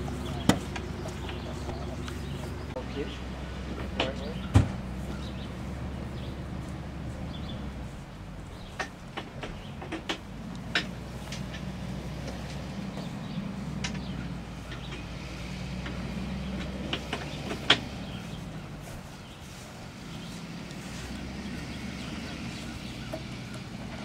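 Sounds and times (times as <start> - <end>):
engine idling: 0.0 - 24.0
sharp knocks and clicks: 0.3 - 2.2, 8.5 - 13.2, 13.8 - 18.4.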